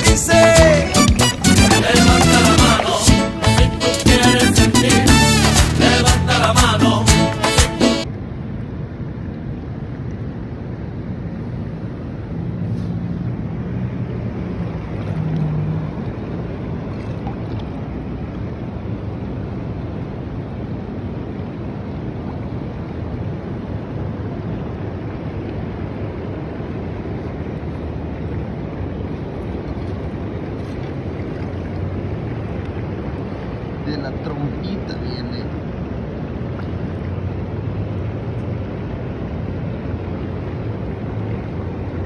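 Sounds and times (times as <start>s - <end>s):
water rushing over gravel: 24.8s - 42.0s.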